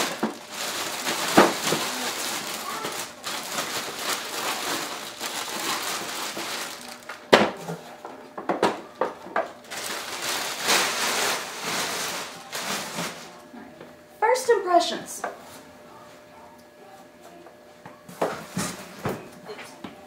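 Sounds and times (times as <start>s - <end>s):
plastic bag crinkling: 0.0s - 7.2s, 9.6s - 13.4s.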